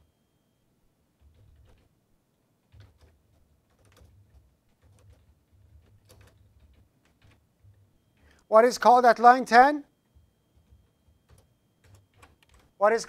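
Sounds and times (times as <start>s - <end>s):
faint keyboard typing: 1.2s - 8.5s, 10.0s - 13.0s.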